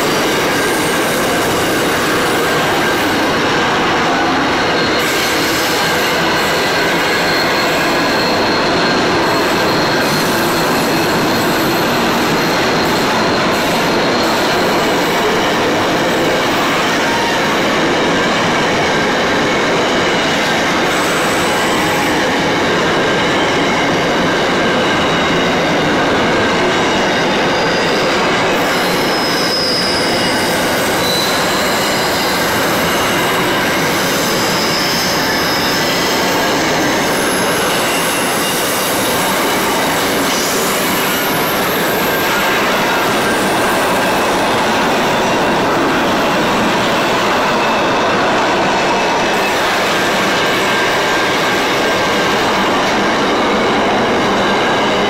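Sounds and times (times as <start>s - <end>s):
high wheel squeal: 0.0s - 55.0s
train wheels rumbling on rail: 0.0s - 55.0s.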